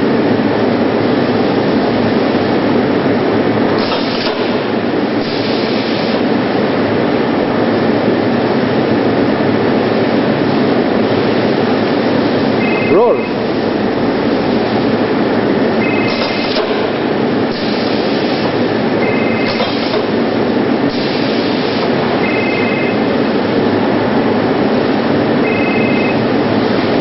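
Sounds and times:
hiss bursts: 3.8s - 4.6s, 5.2s - 6.2s, 17.5s - 18.5s, 19.4s - 20.1s, 20.9s - 22.0s
tray-sealing machine running: 3.8s - 4.8s, 16.0s - 22.2s
two-tone beep: 12.6s - 13.4s, 15.8s - 16.2s, 19.0s - 19.6s, 22.2s - 23.0s, 25.4s - 26.2s.

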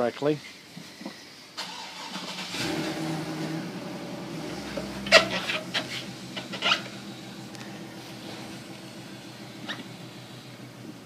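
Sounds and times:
steady low hum: 2.8s - 11.0s.

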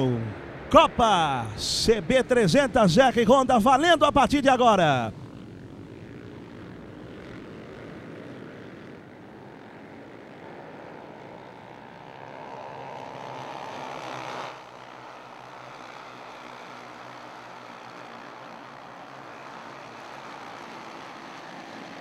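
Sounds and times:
racing motorcycles at high revs: 5.2s - 22.0s.

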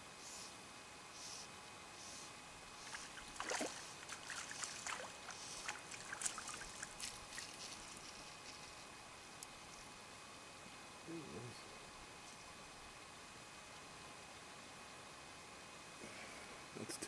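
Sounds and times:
fish splashing at water surface: 2.9s - 7.6s.

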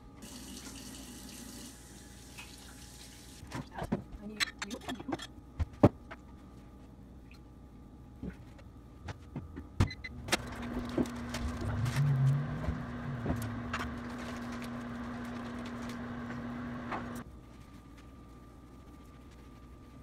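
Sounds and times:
microwave oven humming: 0.0s - 3.8s, 5.3s - 17.4s.

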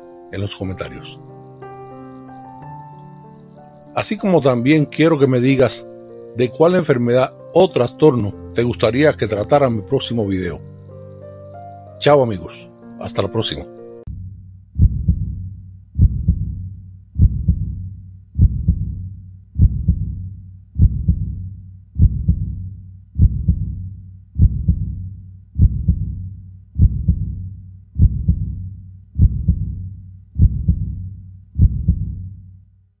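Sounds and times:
steady low hum: 14.0s - 32.5s
heartbeat double thumps: 14.1s - 32.4s.

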